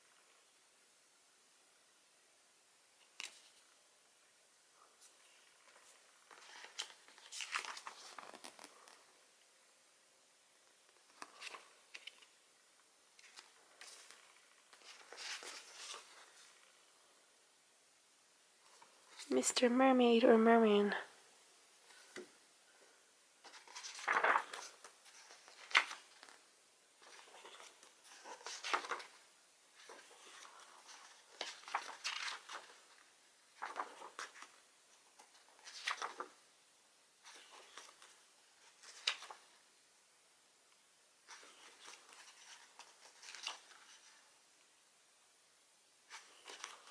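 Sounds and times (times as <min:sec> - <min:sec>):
paper pages rustling: 0:03.0 - 0:03.7, 0:05.0 - 0:09.2, 0:10.9 - 0:12.4, 0:13.1 - 0:16.8, 0:23.4 - 0:36.5, 0:37.2 - 0:39.6, 0:41.2 - 0:44.3, 0:46.1 - 0:46.9.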